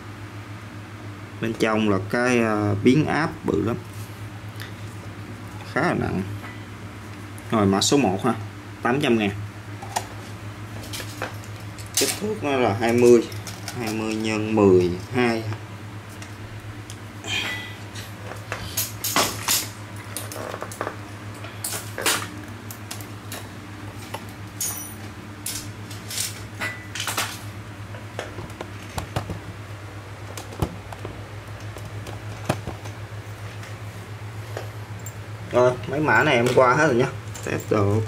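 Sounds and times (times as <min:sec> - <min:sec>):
steady low hum: 0:00.0 - 0:38.0
metal tools clattering on table: 0:24.6 - 0:27.4.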